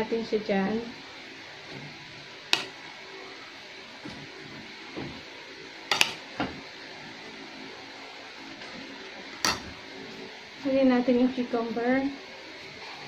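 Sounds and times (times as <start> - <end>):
metal spoon clinking on plates: 5.9 - 6.2, 9.4 - 9.7.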